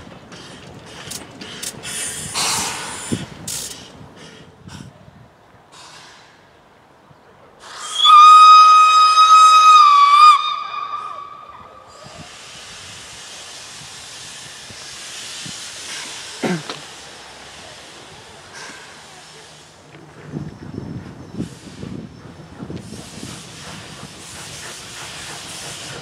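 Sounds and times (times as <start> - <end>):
steam hissing: 0.0 - 5.0, 7.6 - 26.0
steam locomotive whistle: 7.8 - 12.2.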